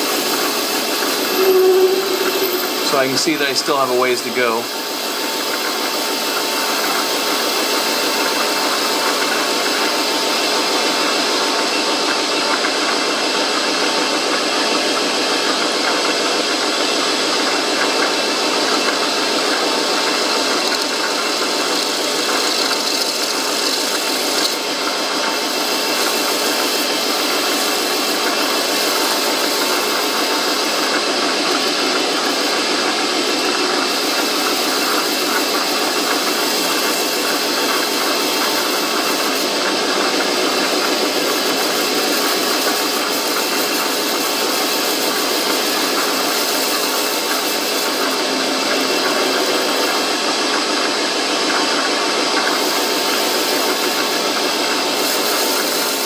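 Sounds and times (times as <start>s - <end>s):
metal lathe cutting brass: 0.0s - 8.0s, 18.7s - 51.2s, 52.4s - 56.0s.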